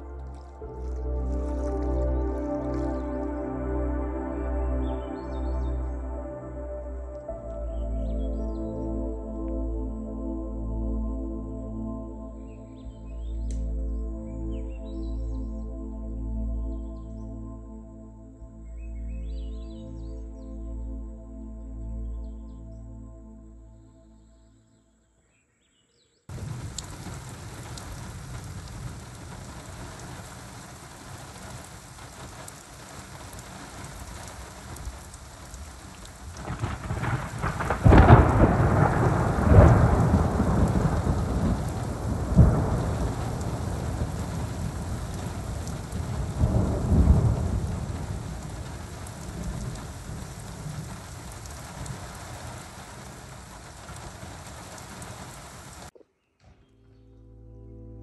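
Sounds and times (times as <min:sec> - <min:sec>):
steady rain falling: 0:00.0 - 0:11.5, 0:26.3 - 0:56.0
thunder rumbling: 0:26.3 - 0:55.9.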